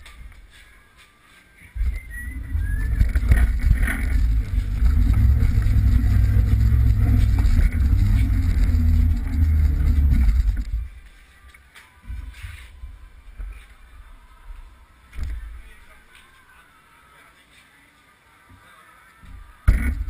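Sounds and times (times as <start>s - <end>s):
kart engine running at low revs: 2.0s - 10.9s.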